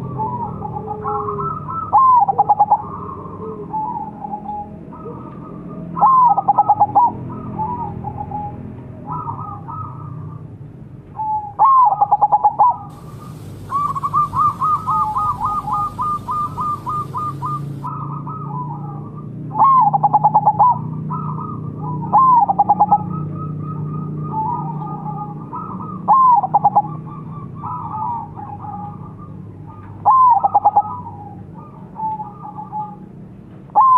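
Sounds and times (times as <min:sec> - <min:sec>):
doves cooing: 0:00.0 - 0:10.2, 0:11.2 - 0:33.0
faint hiss: 0:12.9 - 0:17.9
rapid string of short bird notes: 0:12.9 - 0:17.9.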